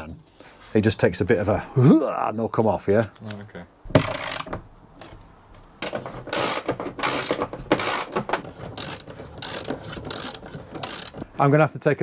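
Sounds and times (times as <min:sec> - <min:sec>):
ratchet wrench clicking: 0:04.0 - 0:04.5, 0:06.3 - 0:08.1, 0:08.8 - 0:11.2.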